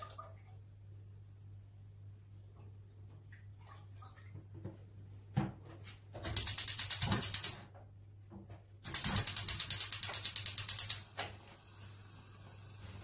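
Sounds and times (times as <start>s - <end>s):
gas hob spark igniter clicking: 6.3s - 7.6s, 8.9s - 11.4s.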